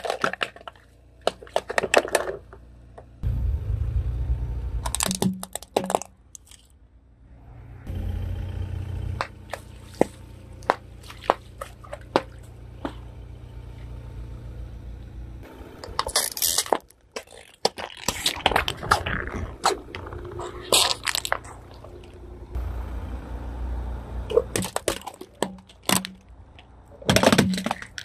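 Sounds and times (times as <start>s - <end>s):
plastic cups crushing and crackling: 0.0s - 2.6s, 4.8s - 6.7s, 15.8s - 22.2s, 24.3s - 28.0s.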